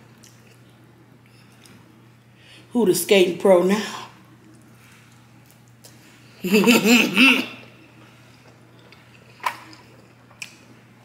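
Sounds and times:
woman laughing: 0:06.4 - 0:07.6.

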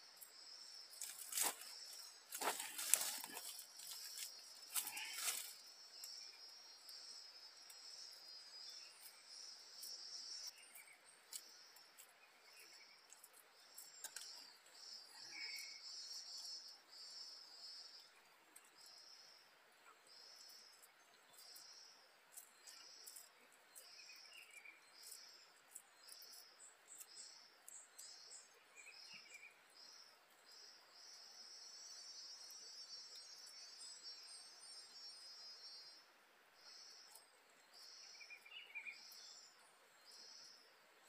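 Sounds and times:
insects chirping: 0:00.0 - 0:40.7
faint bird calls: 0:02.4 - 0:05.6, 0:14.3 - 0:16.7.

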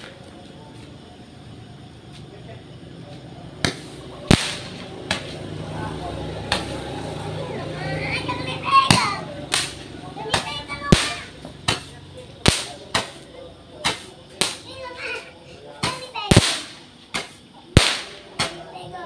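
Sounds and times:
firework sharp cracks: 0:00.0 - 0:00.3, 0:03.6 - 0:05.6, 0:06.4 - 0:06.9, 0:08.7 - 0:15.0, 0:15.8 - 0:18.9.

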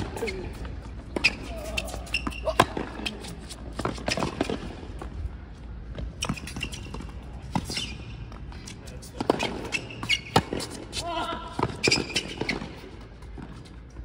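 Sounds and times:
rackets hitting tennis ball: 0:00.0 - 0:05.1, 0:06.0 - 0:14.0
ball bouncing on hard court: 0:01.1 - 0:03.2, 0:09.2 - 0:13.6.

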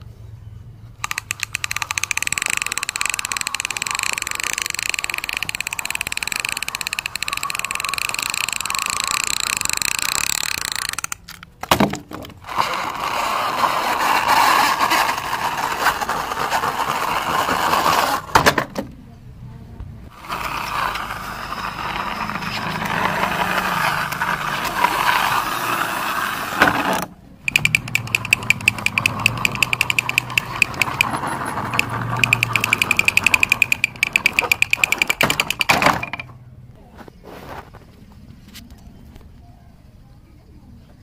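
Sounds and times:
toy car wheels whirring on wood: 0:00.9 - 0:11.5, 0:12.1 - 0:18.4, 0:20.1 - 0:36.3
fast plastic clicks: 0:01.0 - 0:12.7, 0:27.4 - 0:36.3.

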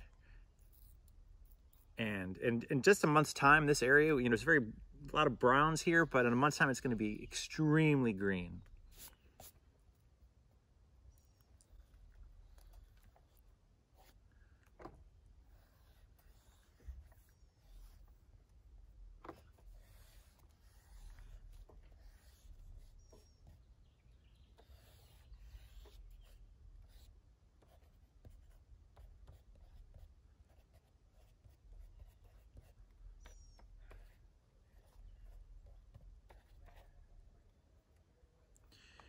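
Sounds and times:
pen scratching on paper: 0:00.6 - 0:02.0, 0:08.6 - 0:09.6, 0:11.1 - 0:14.2, 0:15.4 - 0:18.3, 0:19.2 - 0:23.7, 0:24.6 - 0:37.1.

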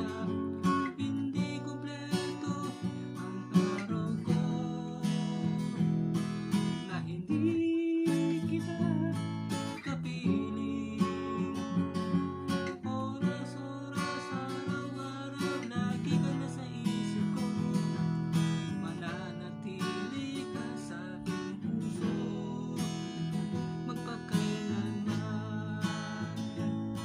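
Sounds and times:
acoustic guitar strumming: 0:00.0 - 0:27.0
man singing: 0:00.0 - 0:27.0.

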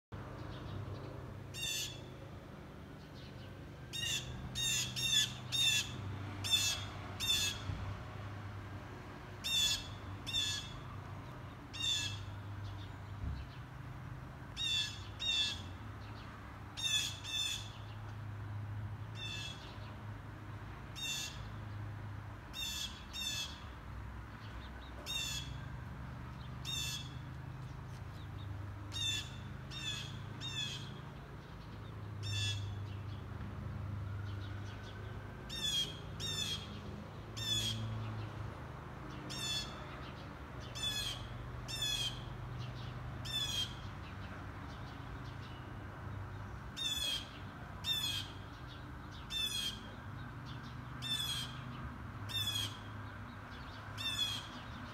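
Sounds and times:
harsh high bird calls: 0:01.5 - 0:02.2, 0:03.9 - 0:07.7, 0:09.4 - 0:10.9, 0:11.6 - 0:12.8, 0:14.5 - 0:15.8, 0:16.8 - 0:18.0, 0:19.2 - 0:19.8, 0:22.5 - 0:23.7, 0:24.8 - 0:25.7, 0:26.6 - 0:27.3, 0:28.2 - 0:31.0, 0:32.2 - 0:32.9, 0:35.5 - 0:36.8, 0:37.4 - 0:38.0, 0:39.1 - 0:43.9, 0:46.8 - 0:48.6, 0:49.2 - 0:50.0, 0:51.0 - 0:51.7, 0:52.3 - 0:53.0, 0:53.6 - 0:54.9.

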